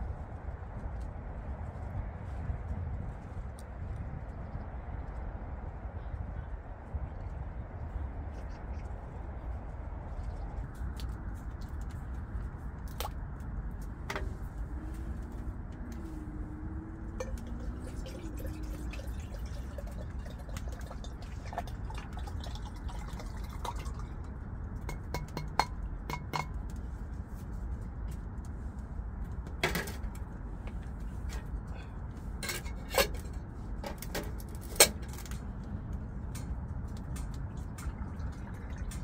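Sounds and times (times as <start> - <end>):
liquid pouring into kettle: 17.2 - 24.0, 37.7 - 39.0.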